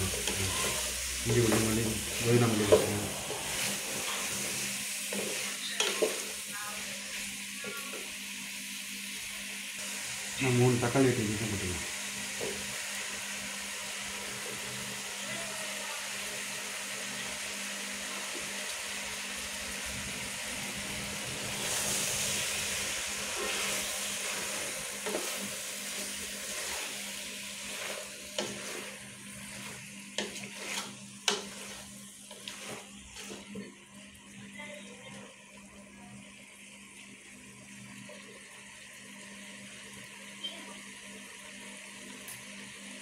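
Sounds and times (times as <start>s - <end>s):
wooden spoon stirring: 0.0s - 6.4s, 21.6s - 33.8s
food sizzling in oil: 0.0s - 43.0s.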